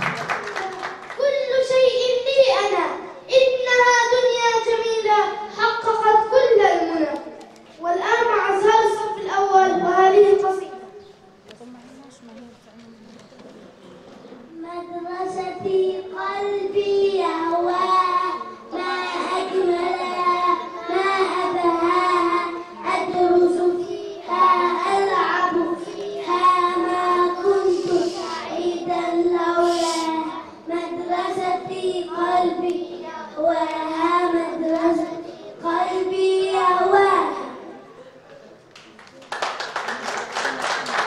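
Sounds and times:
boys singing into microphone: 0:16.6 - 0:36.2.

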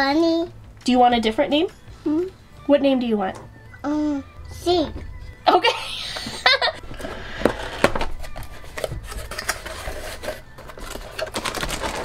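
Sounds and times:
cardboard scraping and rubbing: 0:06.9 - 0:12.0.

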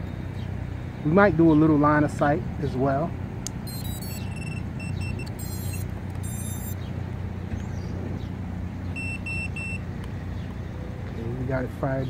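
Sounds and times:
steady low hum: 0:03.1 - 0:10.9
motor power-up beeps: 0:03.7 - 0:06.8, 0:09.0 - 0:09.8.

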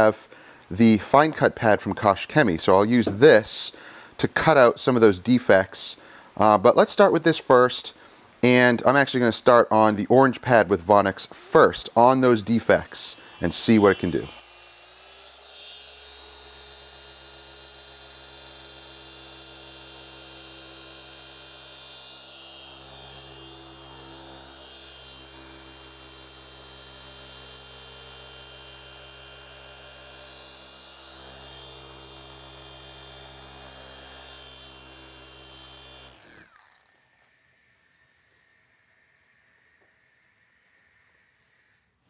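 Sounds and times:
orbital polisher running: 0:11.1 - 0:41.8.

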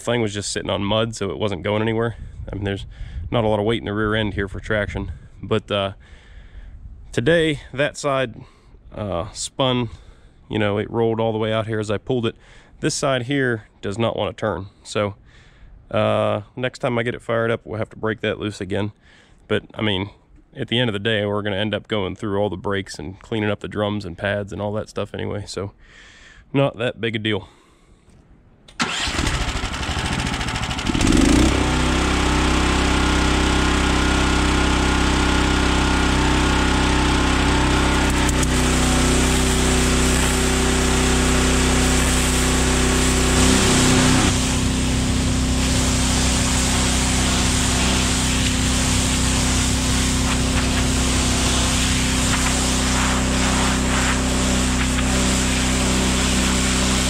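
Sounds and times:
steam cleaner engine drone: 0:28.8 - 0:57.0
continuous hiss: 0:43.0 - 0:56.8.

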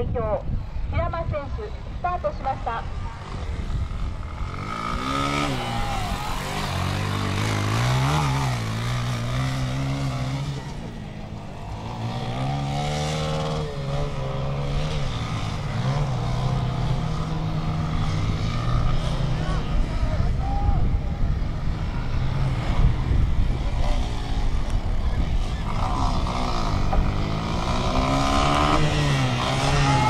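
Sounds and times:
motocross bike engine revving: 0:03.2 - 0:20.3, 0:21.2 - 0:30.0.

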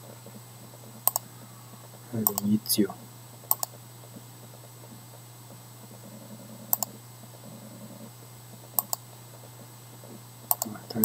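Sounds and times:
faint low hum: 0:00.0 - 0:11.0
computer mouse clicks: 0:01.0 - 0:01.3, 0:02.2 - 0:02.6, 0:03.4 - 0:04.2, 0:06.6 - 0:07.0, 0:08.7 - 0:09.1, 0:10.5 - 0:11.0.

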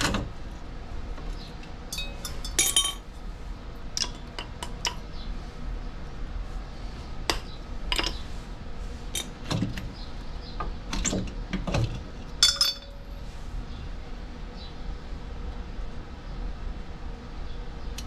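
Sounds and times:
metal clinks and clanks: 0:01.9 - 0:03.1, 0:12.4 - 0:13.1.

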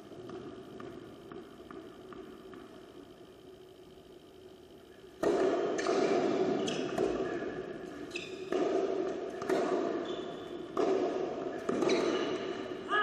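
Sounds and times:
tennis balls struck with rackets: 0:05.2 - 0:12.8.

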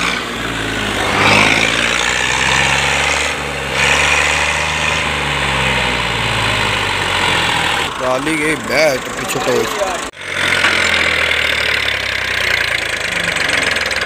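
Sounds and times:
tractor engine running under load: 0:00.0 - 0:14.0.

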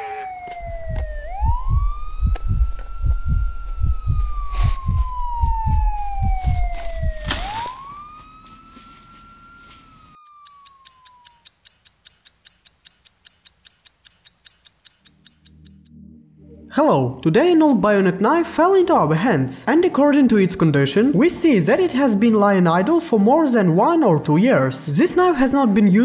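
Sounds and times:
wailing siren: 0:00.0 - 0:11.4
fast deep beat: 0:00.6 - 0:07.6
fast even ticking: 0:00.6 - 0:07.6, 0:10.2 - 0:15.9.

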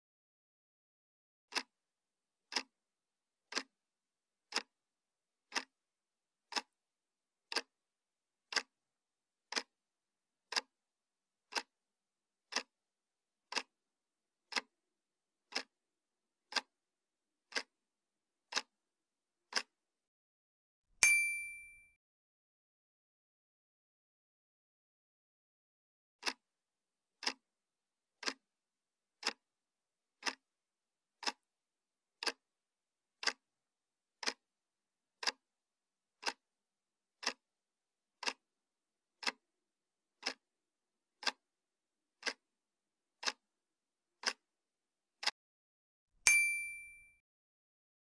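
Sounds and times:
clock ticking: 0:01.5 - 0:01.8, 0:02.5 - 0:02.8, 0:03.5 - 0:03.8, 0:04.5 - 0:04.8, 0:05.5 - 0:05.8, 0:06.5 - 0:06.8, 0:07.5 - 0:07.8, 0:08.5 - 0:08.8, 0:09.5 - 0:09.8, 0:10.5 - 0:10.8, 0:11.5 - 0:11.8, 0:12.5 - 0:12.8, 0:13.4 - 0:13.8, 0:14.5 - 0:14.8, 0:15.5 - 0:15.8, 0:16.5 - 0:16.8, 0:17.5 - 0:17.8, 0:18.5 - 0:18.8, 0:19.5 - 0:19.8, 0:26.2 - 0:26.4, 0:27.2 - 0:27.5, 0:28.2 - 0:28.5, 0:29.2 - 0:29.5, 0:30.2 - 0:30.5, 0:31.2 - 0:31.5, 0:32.2 - 0:32.4, 0:33.2 - 0:33.5, 0:34.2 - 0:34.4, 0:35.2 - 0:35.4, 0:36.2 - 0:36.4, 0:37.2 - 0:37.4, 0:38.2 - 0:38.5, 0:39.2 - 0:39.5, 0:40.2 - 0:40.4, 0:41.2 - 0:41.5, 0:42.2 - 0:42.5, 0:43.2 - 0:43.4, 0:44.2 - 0:44.5
bright ding: 0:21.0 - 0:22.0, 0:46.3 - 0:47.2.

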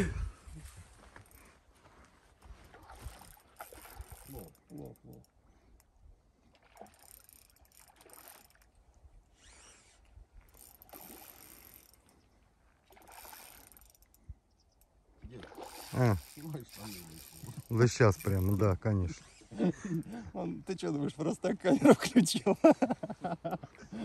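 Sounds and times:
fishing reel cranking: 0:02.9 - 0:05.9, 0:06.8 - 0:12.2, 0:12.9 - 0:14.9, 0:15.5 - 0:20.0.

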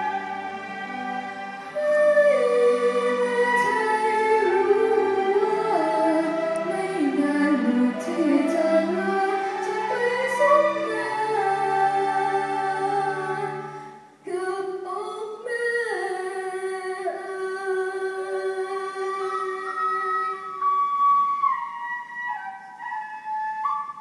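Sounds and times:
string orchestra: 0:00.0 - 0:14.5
woman singing: 0:01.7 - 0:20.6.

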